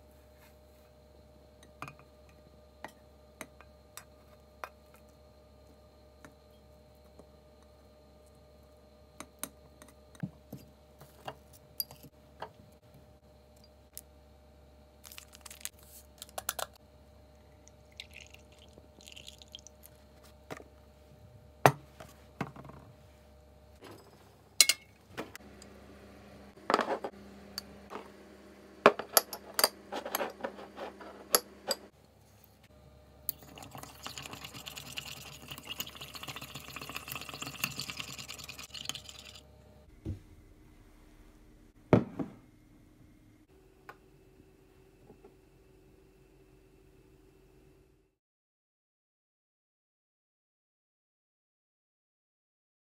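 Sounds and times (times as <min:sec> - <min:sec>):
microwave oven humming: 0:00.0 - 0:32.1, 0:32.7 - 0:48.1
plate and mug set down: 0:26.6 - 0:27.1, 0:28.9 - 0:31.8, 0:42.0 - 0:42.4
spoon stirring in ceramic mug: 0:33.3 - 0:39.4.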